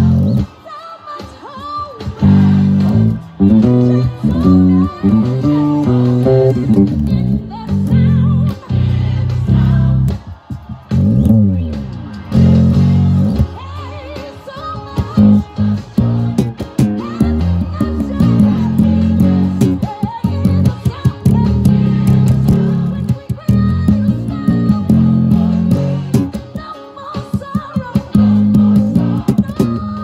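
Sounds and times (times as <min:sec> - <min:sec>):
electric bass guitar fingerstyle: 0:00.0 - 0:00.5, 0:02.2 - 0:13.7, 0:14.9 - 0:26.6, 0:27.6 - 0:30.0
gospel choir singing: 0:08.7 - 0:10.8, 0:27.8 - 0:29.4.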